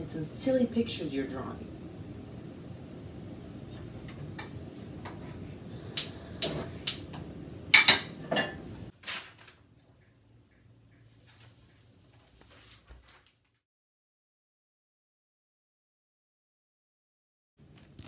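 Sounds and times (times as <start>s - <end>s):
dishes and utensils clinking: 7.8s - 8.7s.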